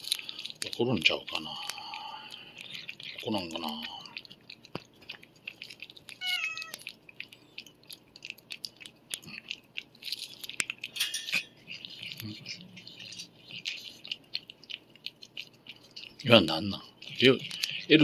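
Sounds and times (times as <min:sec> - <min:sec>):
cat lapping: 0:00.0 - 0:18.0
cat meowing: 0:06.1 - 0:06.9.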